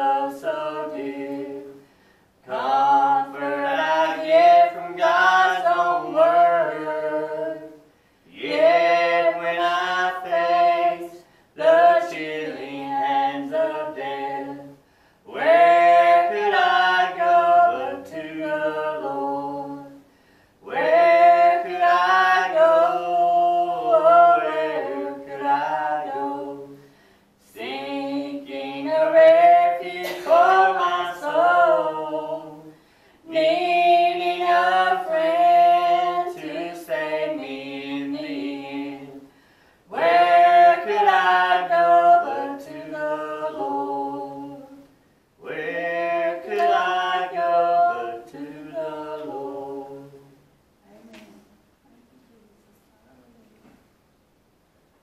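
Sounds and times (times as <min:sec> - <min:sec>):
woman singing a cappella hymn: 0:00.0 - 0:01.8, 0:02.4 - 0:26.8, 0:27.4 - 0:39.3, 0:39.9 - 0:44.8, 0:45.4 - 0:50.1.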